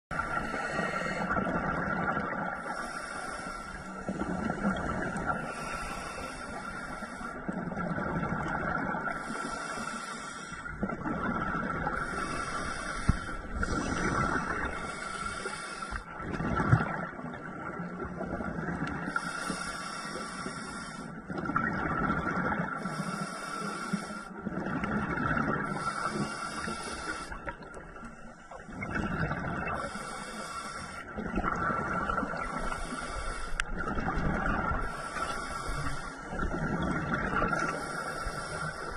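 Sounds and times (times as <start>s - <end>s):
regulator inhale hiss: 0.2s - 1.4s, 2.6s - 7.6s, 9.1s - 10.7s, 12.0s - 16.1s, 19.0s - 21.2s, 22.8s - 24.3s, 25.6s - 27.6s, 29.8s - 31.2s, 32.2s - 33.8s, 34.8s - 36.4s, 37.6s - 38.9s
exhaled bubbles rushing: 1.2s - 2.6s, 7.5s - 9.1s, 10.7s - 12.4s, 13.3s - 15.0s, 16.1s - 19.1s, 21.3s - 22.8s, 24.4s - 26.1s, 28.6s - 29.8s, 31.1s - 32.8s, 33.7s - 35.0s, 36.3s - 37.8s.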